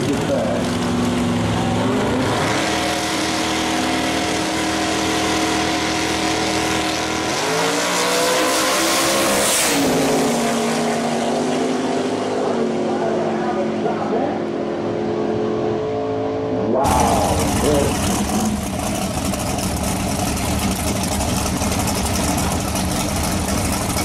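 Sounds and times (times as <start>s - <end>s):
drag car engines revving: 0.0s - 24.0s.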